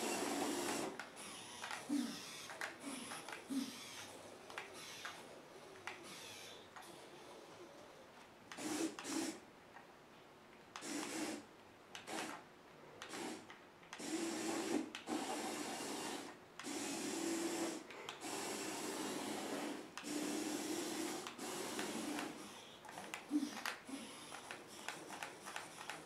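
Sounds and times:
small electric motor whirring: 0:00.0 - 0:05.3, 0:05.9 - 0:07.0, 0:14.0 - 0:26.0.

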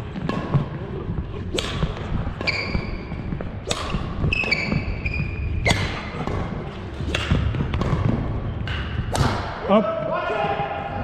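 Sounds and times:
racket striking shuttlecock: 0:01.5 - 0:03.0, 0:03.6 - 0:04.9, 0:05.6 - 0:09.6
sneakers squeaking on wooden court: 0:02.3 - 0:09.1.

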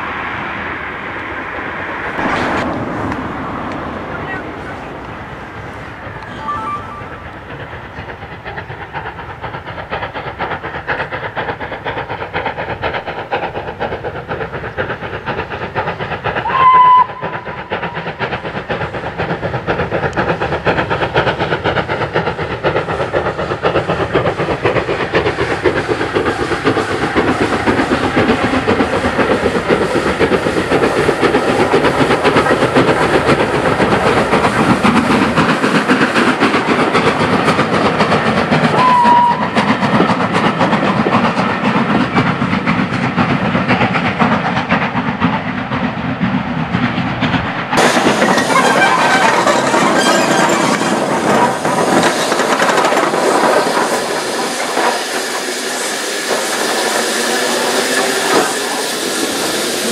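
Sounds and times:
steam engine exhaust beats: 0:02.1 - 0:59.9
steam whistle blasts: 0:16.4 - 0:17.3, 0:38.7 - 0:39.6.

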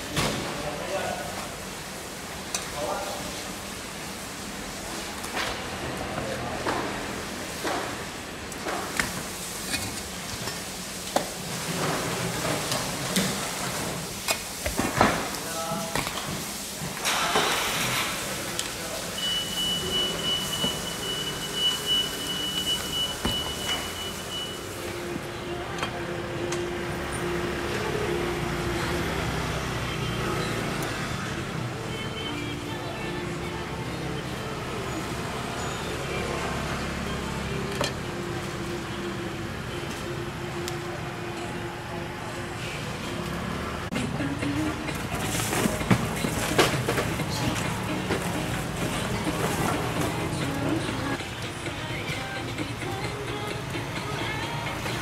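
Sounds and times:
vehicle engine humming: 0:19.8 - 0:55.0.

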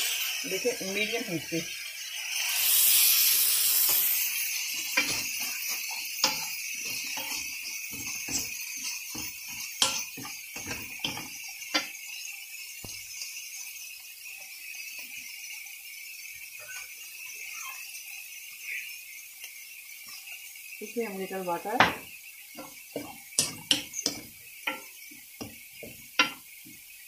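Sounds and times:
onions sizzling in a wok: 0:00.0 - 0:27.0
wooden spatula knocking on pan: 0:09.1 - 0:11.3, 0:21.8 - 0:26.4.

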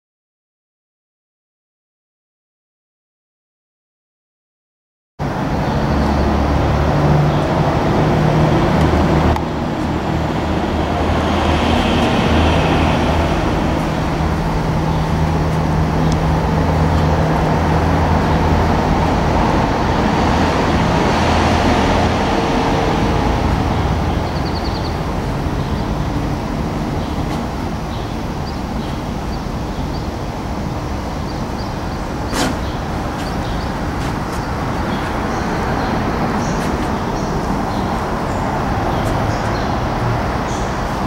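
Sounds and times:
machinery droning: 0:05.2 - 0:41.0.

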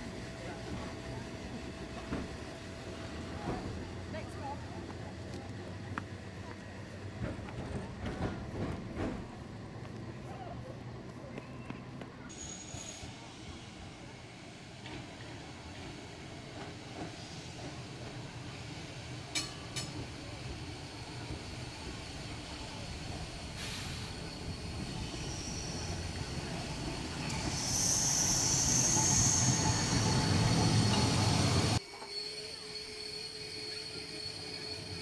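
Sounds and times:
tram rolling on rails: 0:00.0 - 0:35.0
tram wheel squeal: 0:11.3 - 0:35.0.

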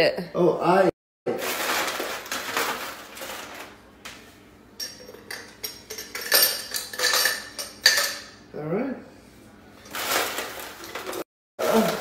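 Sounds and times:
rustling in freezer: 0:01.3 - 0:03.8, 0:09.8 - 0:12.0.

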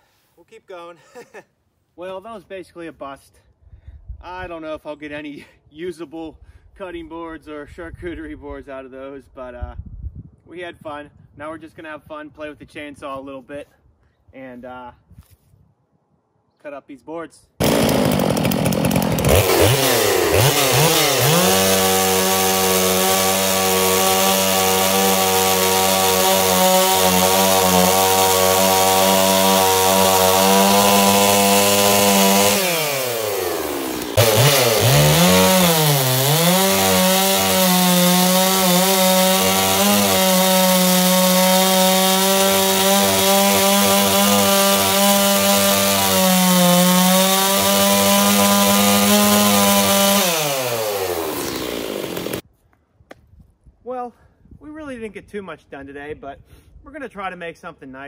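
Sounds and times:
chainsaw cutting wooden boards: 0:17.6 - 0:52.4.

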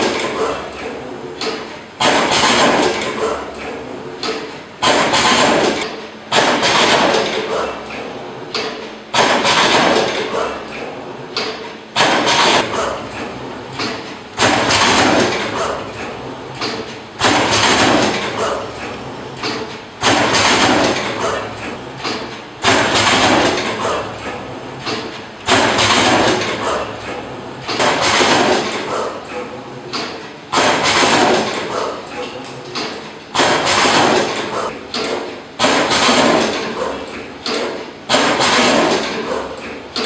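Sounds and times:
wire processing machine cycling: 0:11.4 - 0:29.4.

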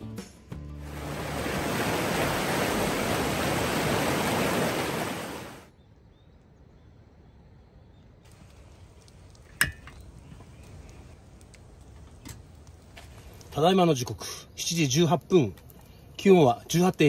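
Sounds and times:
river water rushing over rocks: 0:00.8 - 0:05.7.

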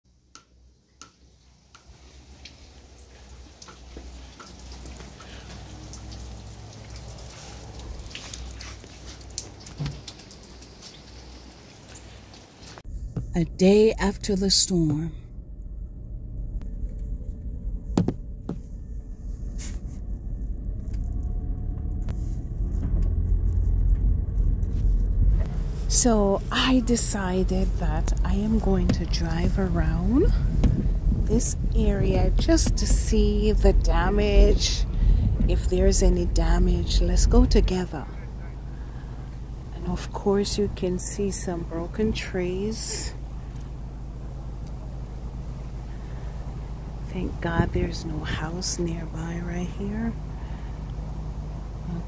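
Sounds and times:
low rumble: 0:12.9 - 0:52.0.

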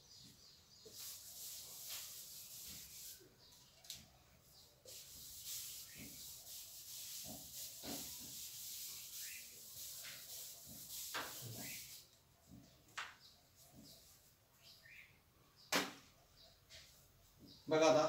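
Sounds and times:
eraser rubbing on whiteboard: 0:00.8 - 0:03.4, 0:04.5 - 0:12.2.

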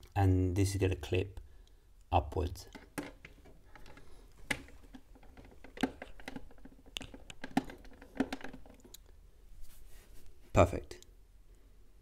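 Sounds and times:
plastic cover clicking into place: 0:02.7 - 0:09.0.

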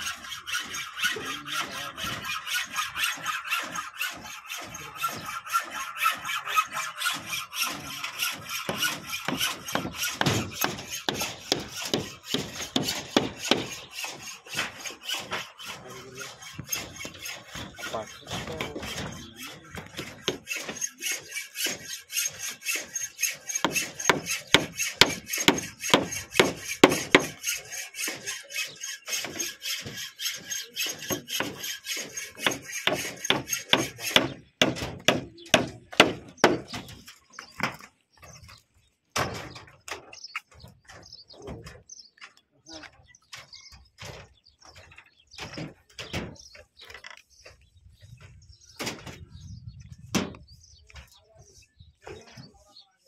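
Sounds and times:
rasping and scraping on wood: 0:00.0 - 0:52.8.

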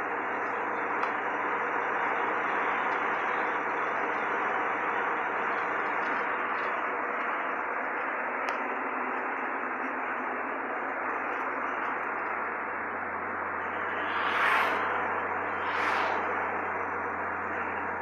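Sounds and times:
car engine hum: 0:00.0 - 0:18.0
road noise: 0:00.0 - 0:18.0
passing traffic whooshes: 0:12.6 - 0:18.0.

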